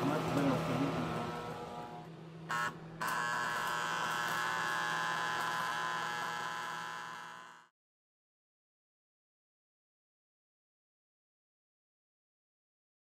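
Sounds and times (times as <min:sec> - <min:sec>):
arc welder humming: 0:00.0 - 0:07.7
welding arc buzzing and crackling: 0:00.0 - 0:07.7.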